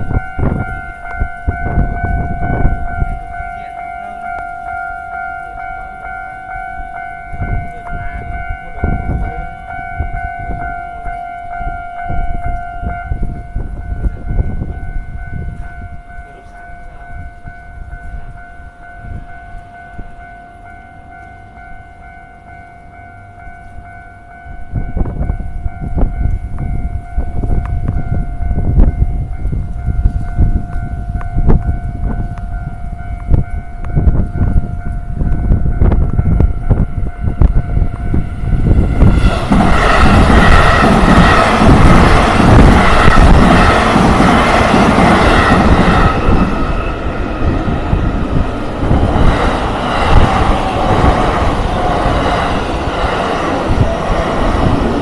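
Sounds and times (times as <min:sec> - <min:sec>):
level crossing warning bell: 0:00.0 - 0:55.0
loud low rumble: 0:34.0 - 0:55.0.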